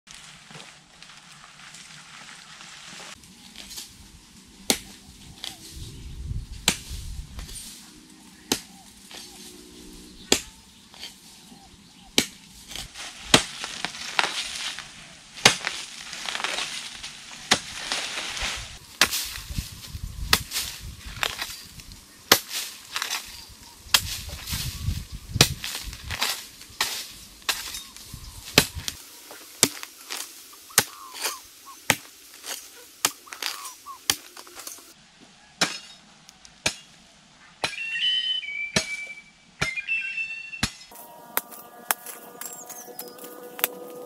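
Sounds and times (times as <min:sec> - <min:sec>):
dry leaves rustling: 0:00.1 - 0:35.0, 0:40.9 - 0:44.0
hoe striking dry soil: 0:04.7 - 0:05.6, 0:06.6 - 0:07.8, 0:08.4 - 0:09.6, 0:10.2 - 0:11.4, 0:12.0 - 0:24.8, 0:25.4 - 0:34.9, 0:40.6 - 0:44.0.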